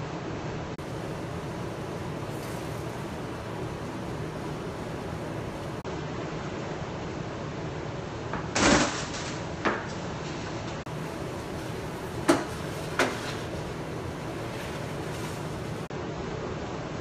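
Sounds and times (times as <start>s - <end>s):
steady hiss: 0.8s - 5.8s, 10.9s - 15.9s.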